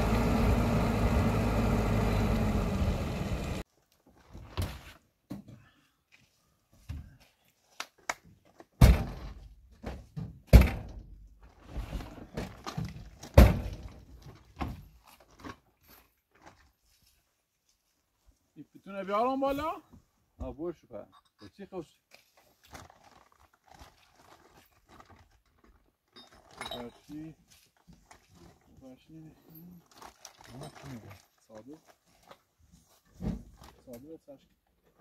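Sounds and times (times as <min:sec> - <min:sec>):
knocks and thuds: 0:08.8 - 0:11.1.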